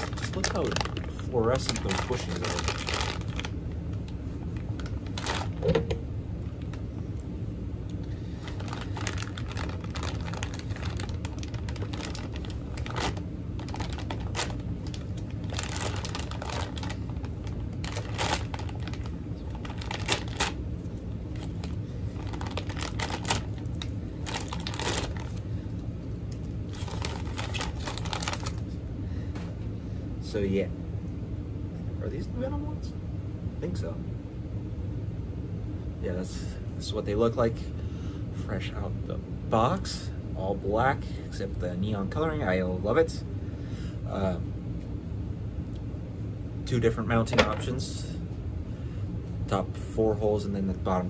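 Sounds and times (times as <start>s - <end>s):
plastic bags crinkling: 0.0s - 6.8s, 8.3s - 25.8s, 26.4s - 28.7s
steady low hum: 0.0s - 51.0s.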